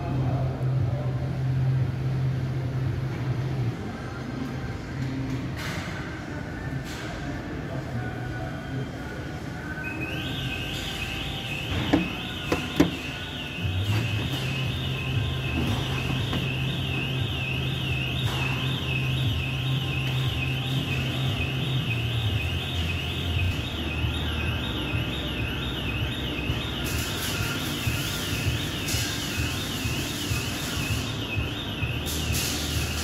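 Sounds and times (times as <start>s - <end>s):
warbling electronic alarm tone: 9.8s - 33.0s.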